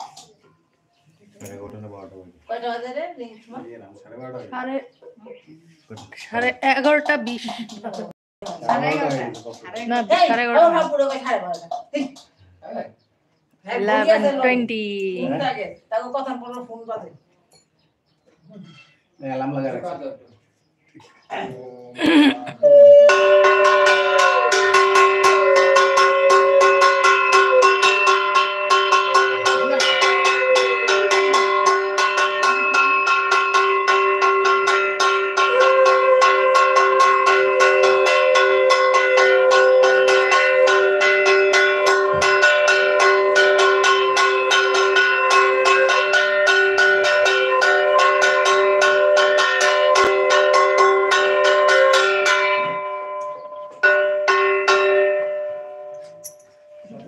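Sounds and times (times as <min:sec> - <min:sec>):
metal bells ringing rapidly: 0:22.0 - 0:57.0.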